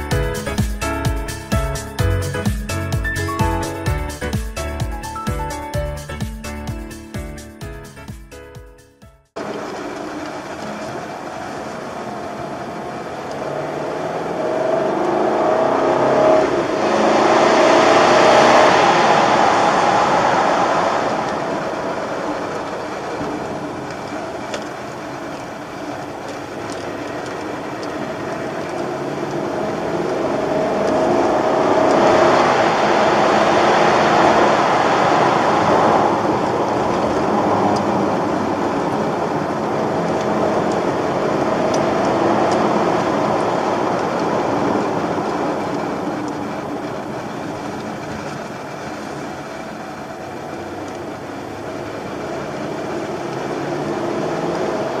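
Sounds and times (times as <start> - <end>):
car engine from inside cabin: 9.3 - 55.0.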